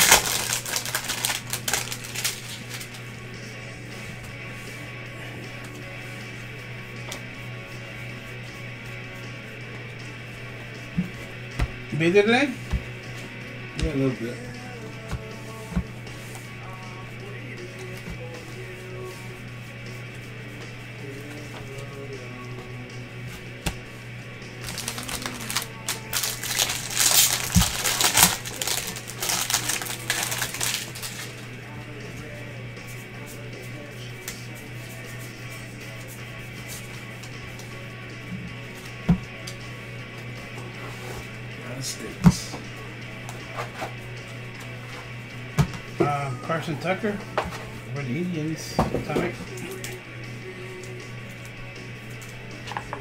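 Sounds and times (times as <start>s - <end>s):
trading cards clicking and rustling: 0.0s - 3.0s, 24.6s - 31.4s
guitar music: 0.0s - 32.4s.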